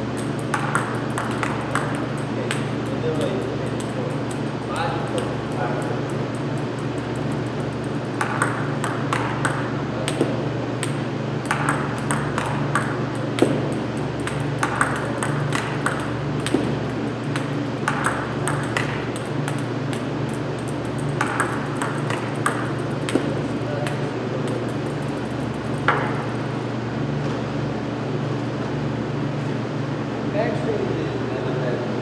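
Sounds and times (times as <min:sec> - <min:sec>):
steady low hum: 0:00.0 - 0:32.0
table tennis ball clicking: 0:00.2 - 0:04.5, 0:05.1 - 0:26.2.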